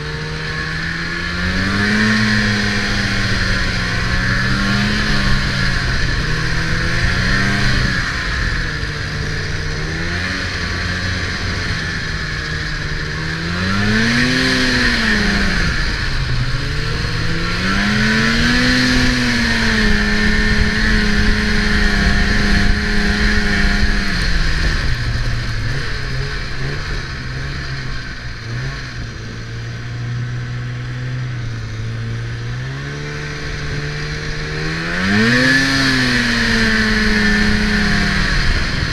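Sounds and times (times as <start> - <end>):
snowmobile engine running: 0.0 - 38.9.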